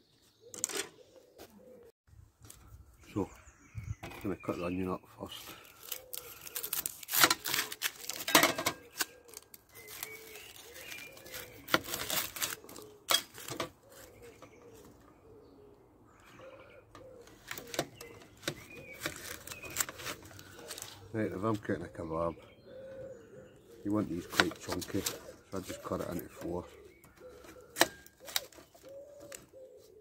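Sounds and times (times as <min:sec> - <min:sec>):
bird calling: 0:00.0 - 0:01.9, 0:02.5 - 0:30.0
onion skin crackling and tearing: 0:05.6 - 0:08.3, 0:08.9 - 0:14.1, 0:18.4 - 0:21.0.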